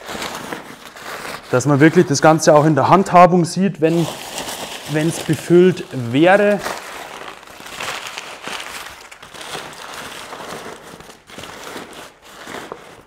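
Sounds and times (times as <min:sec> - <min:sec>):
packing paper crinkling: 0:00.0 - 0:03.1, 0:03.8 - 0:13.0.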